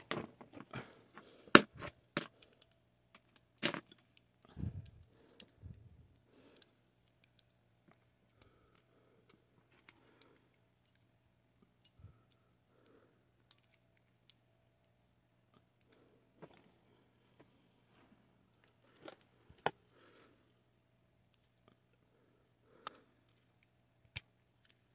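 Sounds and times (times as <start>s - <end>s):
small metal parts clicking: 2.2s - 4.3s, 6.6s - 11.1s, 11.7s - 12.4s, 13.4s - 14.4s.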